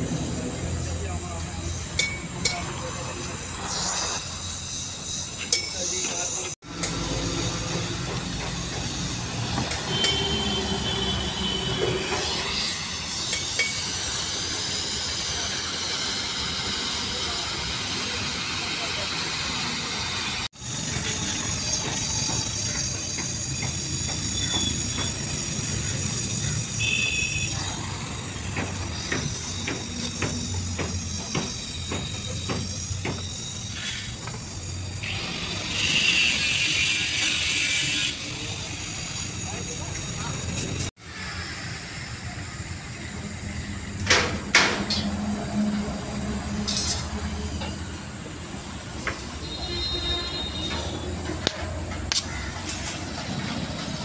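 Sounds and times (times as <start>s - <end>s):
sharp metallic knocks: 2.0s - 2.8s, 5.4s - 10.6s, 20.9s - 26.7s, 28.4s - 34.6s, 44.0s - 45.1s
welding torch flame hissing: 2.7s - 45.0s.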